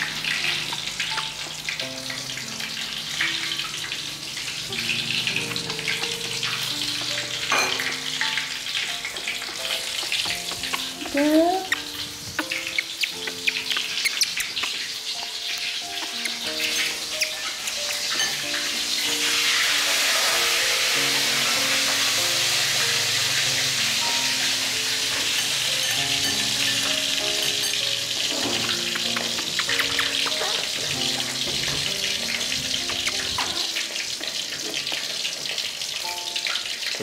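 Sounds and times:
oil sizzling in a wok: 0.0 - 37.0
simple melody background music: 0.0 - 37.0.

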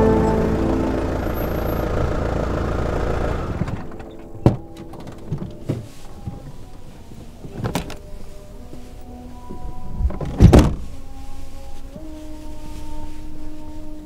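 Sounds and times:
car engine rumbling: 0.0 - 5.7.

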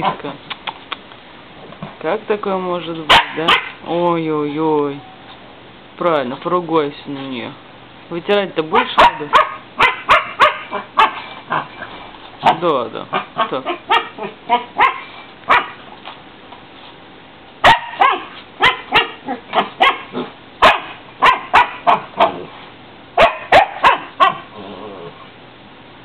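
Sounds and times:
puppy barking and yipping: 3.1 - 3.8, 8.7 - 11.8, 12.4 - 15.8, 17.6 - 22.5, 23.2 - 24.6.

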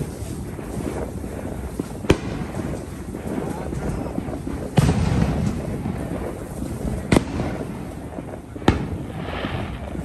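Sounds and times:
fireworks bangs: 0.0 - 10.0.

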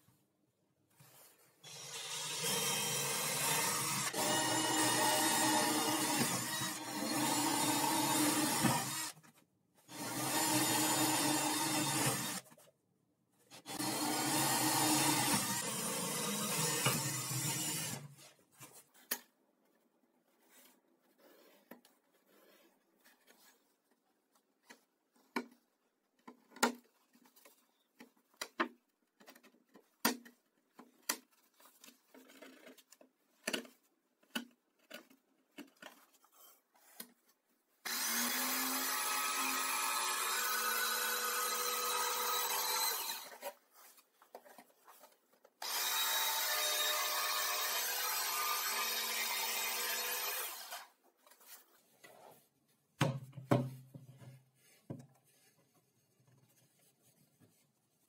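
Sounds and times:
cordless drill boring through plywood: 1.6 - 9.2, 9.9 - 12.4, 13.6 - 18.1, 37.8 - 43.5, 45.6 - 50.9.

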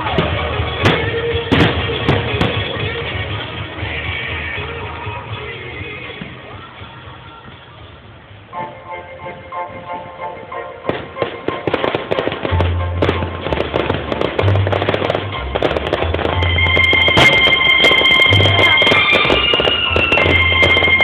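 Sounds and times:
fireworks popping and banging: 0.0 - 6.7, 10.9 - 21.0
music playing: 0.0 - 21.0.

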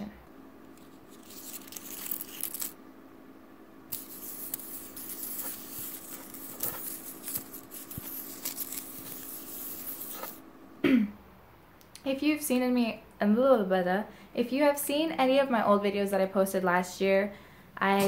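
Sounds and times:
paper letters rustling on wood: 0.7 - 2.8, 3.9 - 10.4.

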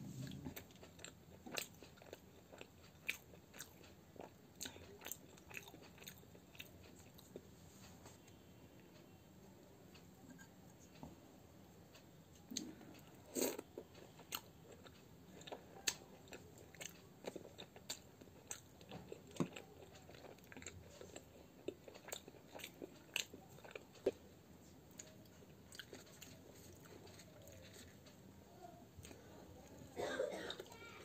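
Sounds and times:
person chewing with crunches: 0.0 - 7.4, 12.4 - 28.2.

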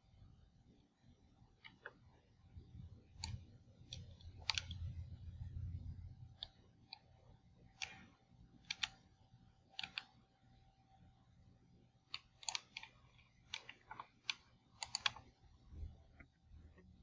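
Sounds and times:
faint steady hum: 0.0 - 17.0
sharp clicks: 3.2 - 5.0, 9.8 - 10.2, 12.1 - 15.3
low rumble: 4.8 - 6.4.

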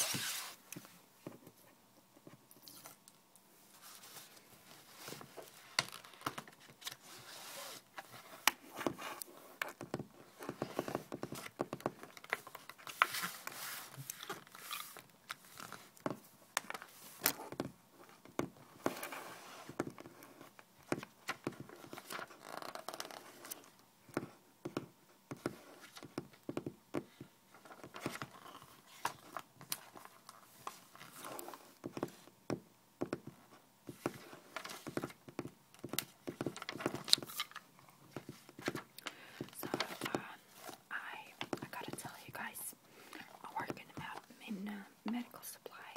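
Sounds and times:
magazine pages flipping: 0.0 - 0.9, 3.8 - 9.3, 10.3 - 16.0, 35.8 - 40.8.

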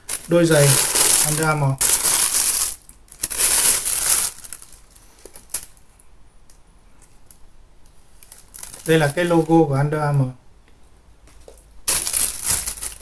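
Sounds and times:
tissue paper rustling: 0.0 - 5.7, 8.2 - 9.7, 11.9 - 13.0.

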